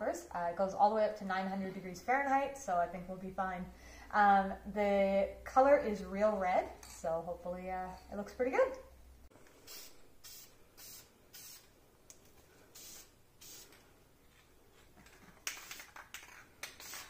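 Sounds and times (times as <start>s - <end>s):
aerosol spray hissing: 9.6s - 11.7s, 12.7s - 13.8s.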